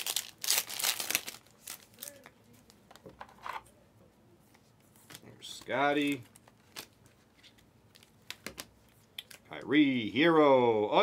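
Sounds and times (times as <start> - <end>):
foil wrapper crinkling: 0.0 - 2.3
cards rustling: 0.0 - 3.7, 4.5 - 9.4.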